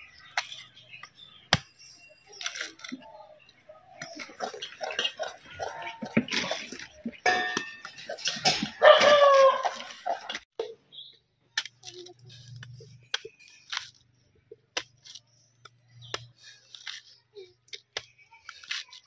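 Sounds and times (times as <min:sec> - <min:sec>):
ladle clinking in steel pot: 0:07.2 - 0:08.8.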